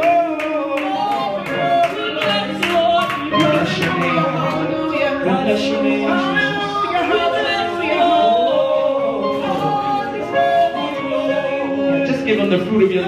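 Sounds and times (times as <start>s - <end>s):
group singing into microphones: 0.0s - 13.0s.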